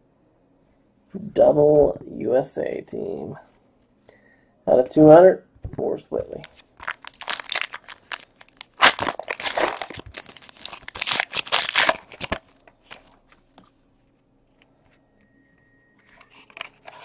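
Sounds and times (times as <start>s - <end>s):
foil wrapper crinkling: 6.4s - 13.6s.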